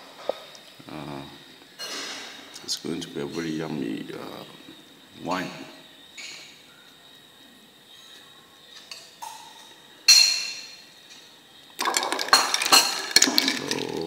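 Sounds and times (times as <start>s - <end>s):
ice rattling in glass: 11.8s - 14.0s.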